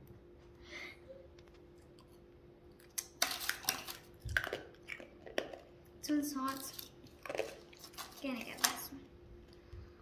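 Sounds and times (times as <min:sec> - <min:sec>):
sugar candy cracking: 0:02.8 - 0:08.9.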